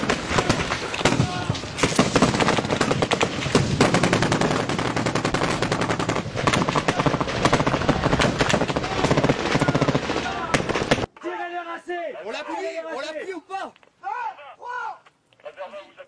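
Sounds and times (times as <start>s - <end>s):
rapid automatic rifle gunfire: 0.0s - 11.1s.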